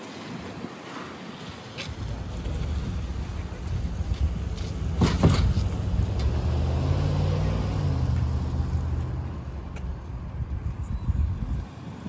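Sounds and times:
truck engine humming: 2.0 - 10.9.

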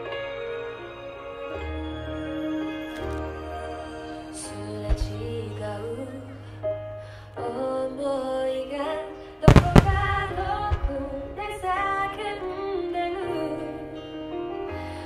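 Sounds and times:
music with singer: 0.0 - 15.0
faint fireworks bangs: 9.5 - 12.5.

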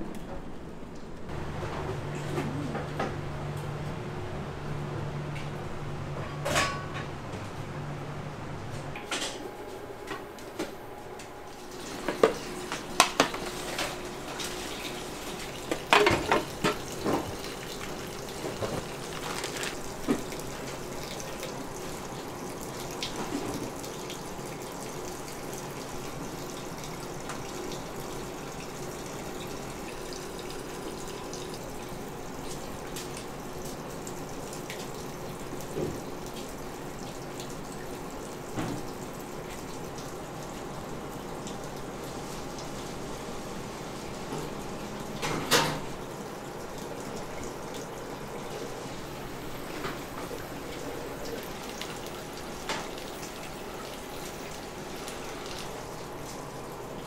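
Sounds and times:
dishes and utensils clinking: 6.2 - 7.1
water running from a tap: 11.5 - 57.0.

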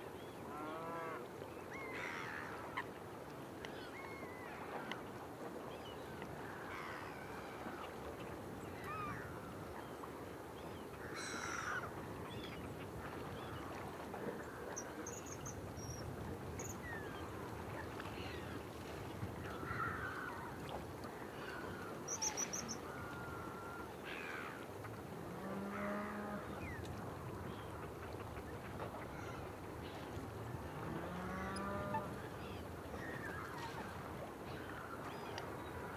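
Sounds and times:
bird calls and chirps: 22.1 - 22.9.

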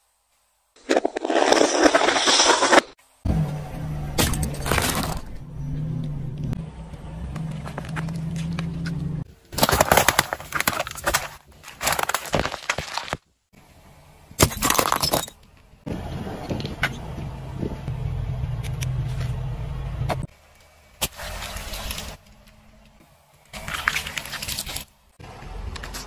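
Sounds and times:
low engine hum: 3.3 - 9.3, 15.5 - 23.4, 25.2 - 26.0.

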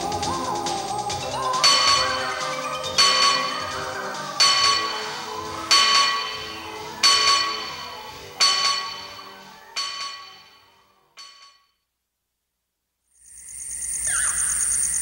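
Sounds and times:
bell-like chimes: 1.4 - 11.6.

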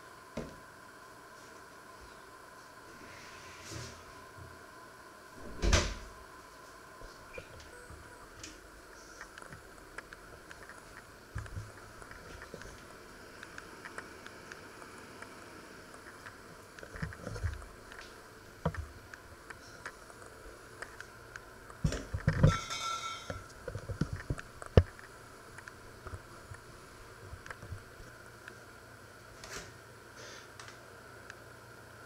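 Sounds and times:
faint steady hum: 0.0 - 32.0
metallic ring: 22.5 - 23.4.

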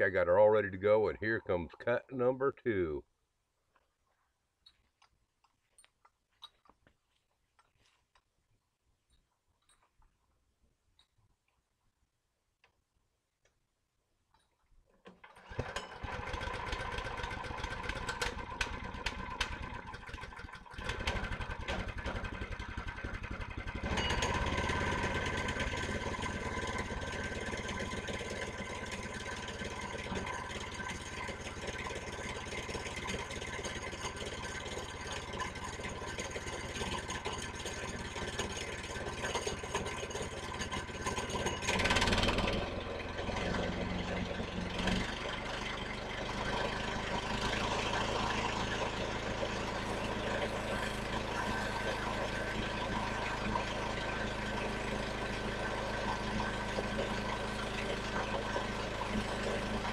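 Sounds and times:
bandsaw mill gas engine running: 15.2 - 59.9.

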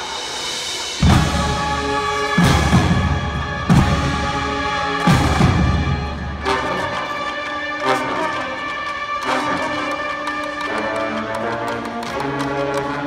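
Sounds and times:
brass band chords: 0.3 - 13.0
heavy drum hits: 1.0 - 6.0.

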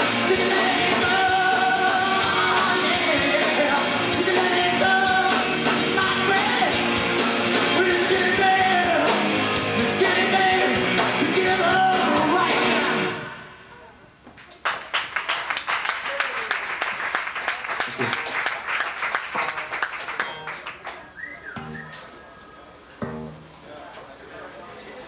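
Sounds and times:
live rock band playing: 0.0 - 13.3, 19.3 - 20.8, 21.6 - 22.0, 23.0 - 23.6
man singing: 0.0 - 13.5
audience clapping: 14.3 - 21.7.

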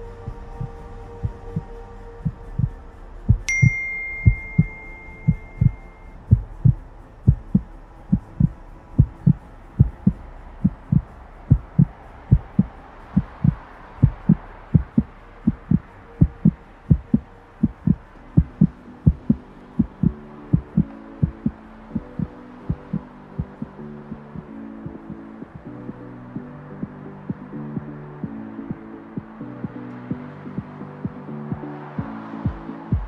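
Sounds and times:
low drone: 0.0 - 33.0
heartbeat thumps: 0.3 - 23.8, 31.0 - 33.0
high chime: 3.5 - 6.4.

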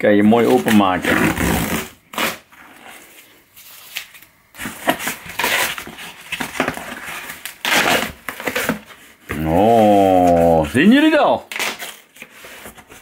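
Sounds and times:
person speaking: 0.0 - 1.4, 9.3 - 11.5
cardboard flaps scraping and crinkling: 0.2 - 13.0.

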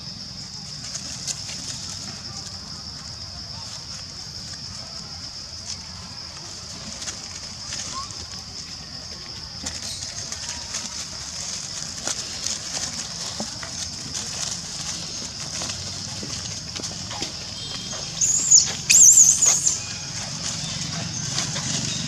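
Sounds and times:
rustling in dry leaves: 0.0 - 22.0
monkey screaming: 18.2 - 20.0.

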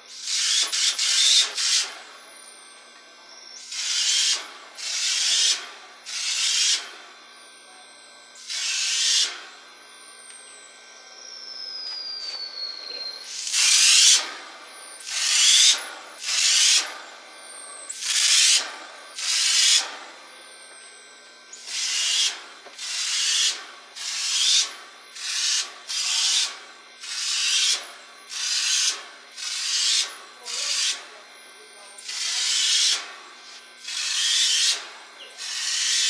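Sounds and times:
spray gun hissing blasts: 13.3 - 14.2, 15.1 - 16.8, 21.7 - 30.0.

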